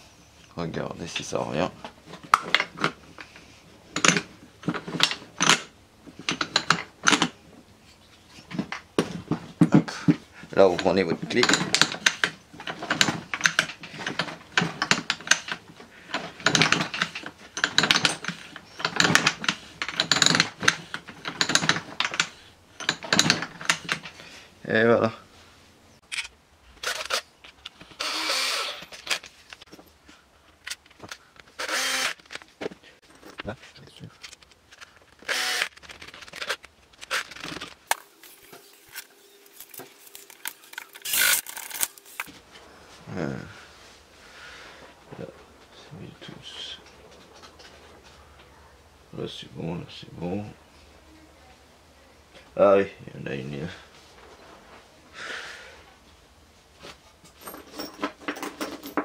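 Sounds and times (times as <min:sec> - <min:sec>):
scraping rustle: 0:53.3 - 0:55.0.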